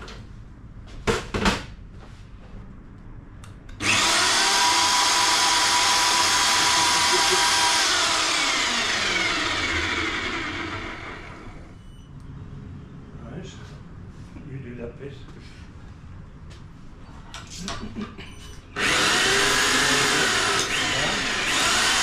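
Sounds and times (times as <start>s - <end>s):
hoist motor whining: 3.8s - 11.7s, 18.8s - 22.0s.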